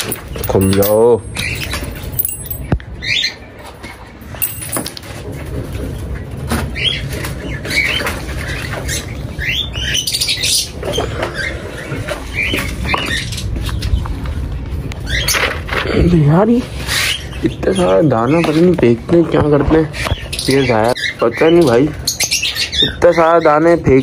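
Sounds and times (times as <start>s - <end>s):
birds chirping: 0.0s - 4.9s, 16.8s - 24.0s.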